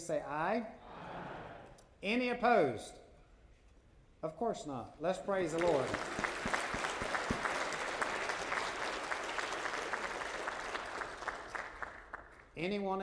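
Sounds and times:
crowd applauding: 0:05.5 - 0:12.4.

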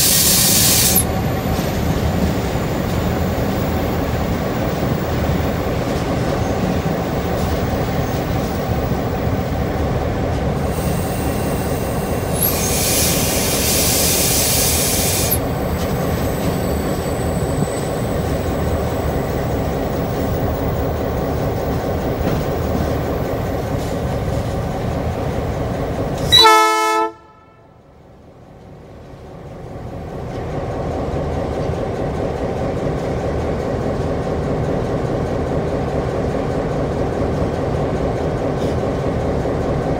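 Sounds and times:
hiss: 0:00.0 - 0:01.1, 0:10.6 - 0:15.4
diesel locomotive running: 0:00.0 - 0:39.9
loud train horn blast: 0:26.2 - 0:28.0.

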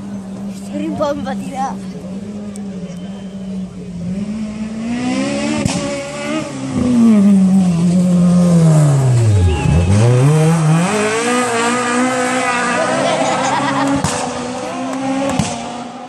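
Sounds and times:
rally car engine revving past: 0:04.0 - 0:16.0.

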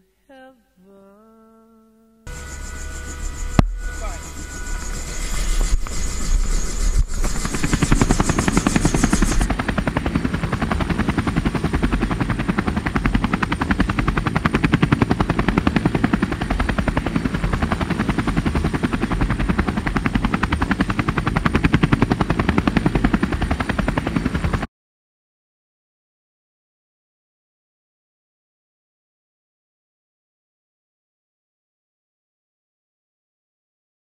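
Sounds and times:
helicopter rotor beating: 0:02.3 - 0:24.7.

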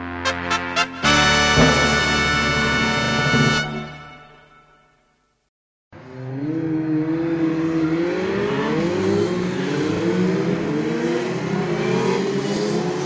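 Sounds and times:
race car engine accelerating: 0:00.9 - 0:04.1, 0:06.0 - 0:13.0.

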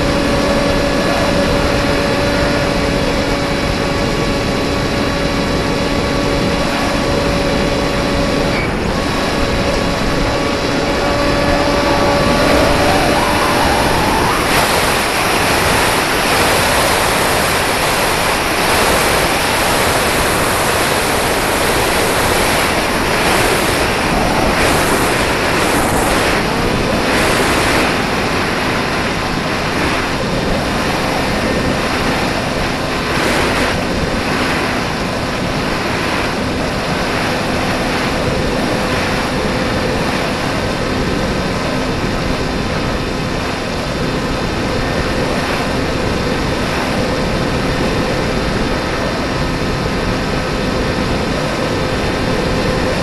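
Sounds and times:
faint motor tone: 0:00.0 - 0:36.2
wind rushing over microphone: 0:00.0 - 0:53.0.

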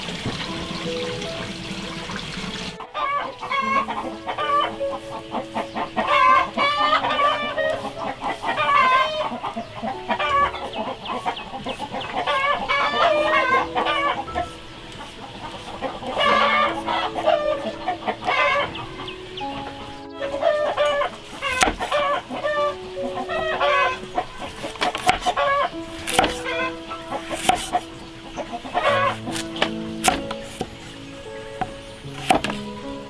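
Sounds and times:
chickens clucking: 0:00.0 - 0:32.8
soft background music: 0:00.0 - 0:33.0
cleaver chopping on board: 0:21.5 - 0:21.9, 0:26.0 - 0:26.5, 0:27.3 - 0:27.8, 0:29.3 - 0:30.7, 0:32.2 - 0:32.6.

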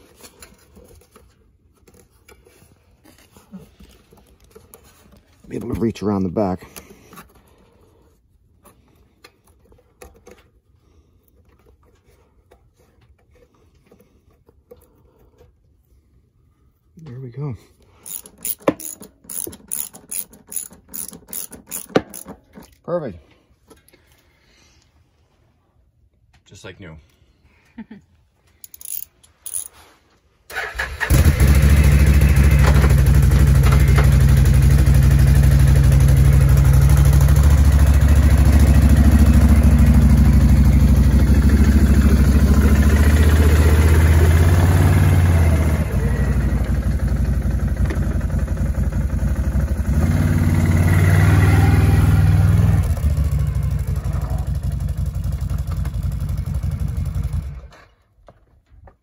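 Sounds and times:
quad bike engine running: 0:31.0 - 0:57.7.

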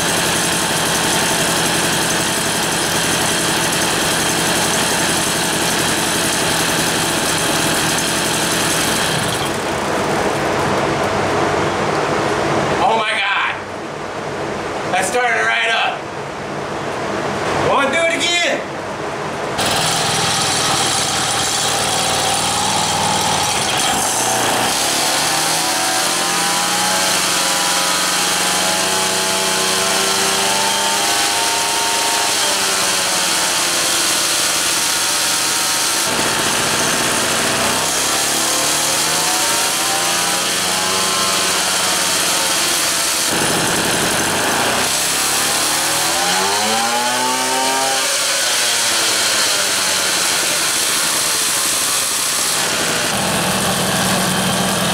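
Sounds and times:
moped engine revving: 0:00.0 - 0:12.3, 0:19.6 - 0:54.9.

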